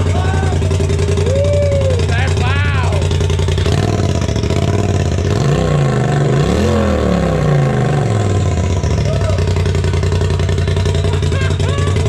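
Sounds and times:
engine revving and idling: 0.0 - 12.0.

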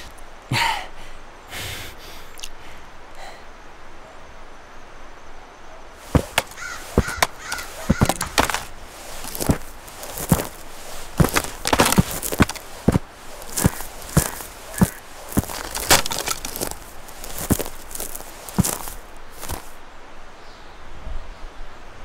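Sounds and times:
boots crunching on dry grass: 6.0 - 19.8.

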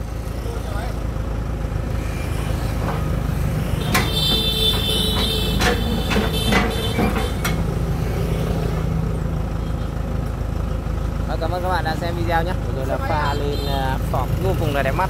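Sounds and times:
engine idling: 0.0 - 15.0
steel ramps clanking: 2.2 - 8.9.

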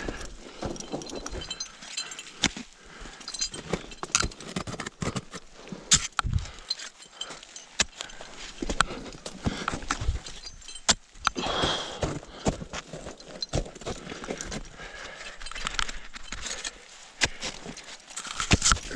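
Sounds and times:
climbing gear clinking: 0.0 - 18.9.

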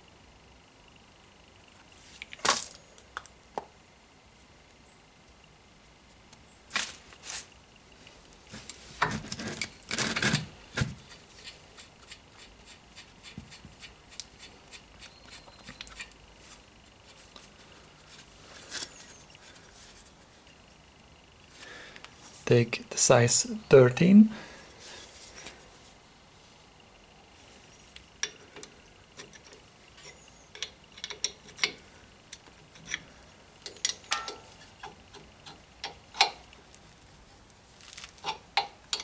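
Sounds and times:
metallic knocks from brake parts: 33.7 - 35.0.

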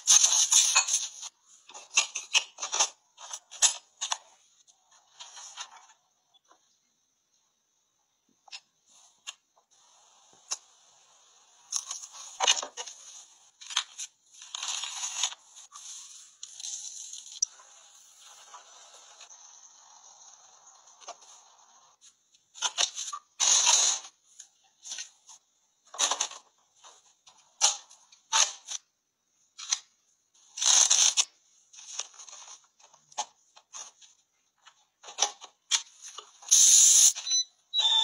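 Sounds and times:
plastic gadgets clicking and clattering: 0.1 - 4.4, 22.4 - 28.9, 29.5 - 37.3.

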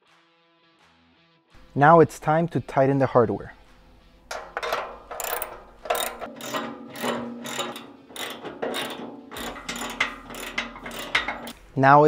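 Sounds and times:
socket ratchet clicking: 4.3 - 11.6.

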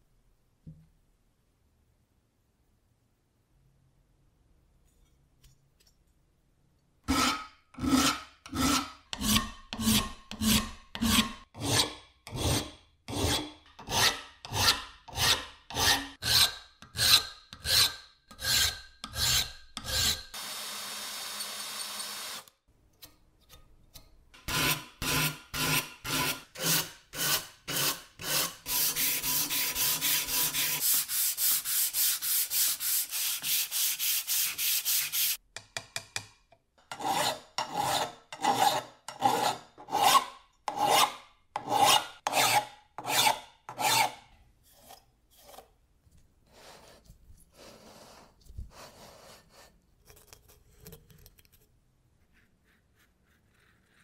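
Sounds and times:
file rasping on metal: 7.1 - 20.4, 24.4 - 35.4, 36.9 - 45.7
drill running: 20.4 - 22.5.

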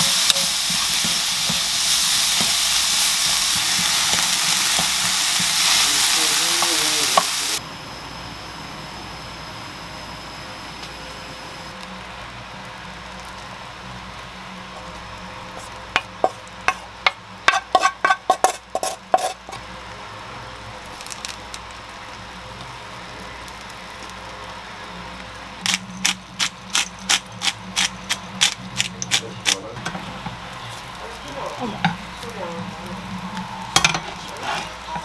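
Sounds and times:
egg sizzling in a pan: 0.0 - 7.6, 11.6 - 35.0
pepper grinder clicking: 25.6 - 29.6.

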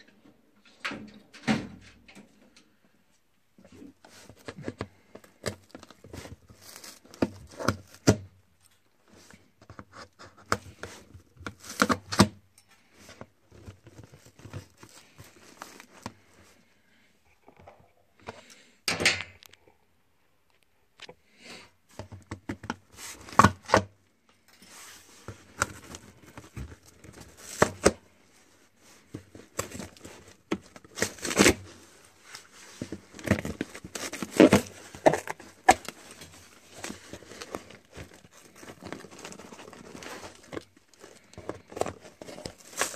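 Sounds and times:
cardboard box tearing: 29.5 - 42.9.

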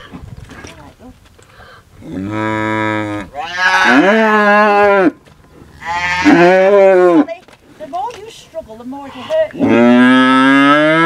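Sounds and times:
calf bawling loudly: 3.3 - 5.1, 5.8 - 7.3.

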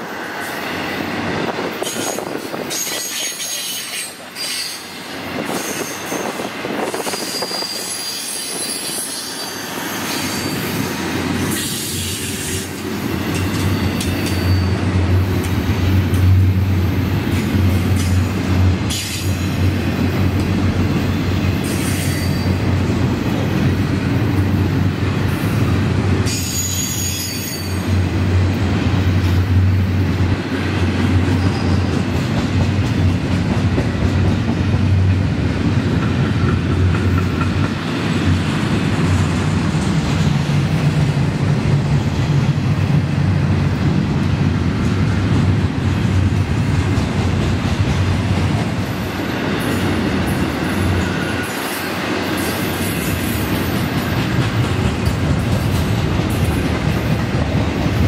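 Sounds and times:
train wheels rumbling on rails: 0.0 - 58.0
high wheel squeals: 13.7 - 14.8, 26.3 - 27.8.

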